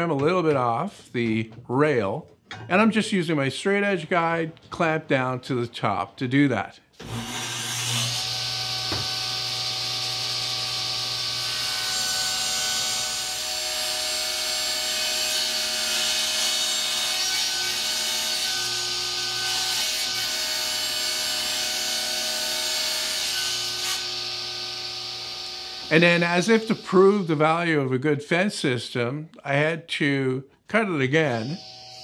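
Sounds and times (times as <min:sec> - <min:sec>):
table saw cutting wood: 0:07.0 - 0:27.6, 0:31.3 - 0:32.0
saw motor humming: 0:23.6 - 0:27.5.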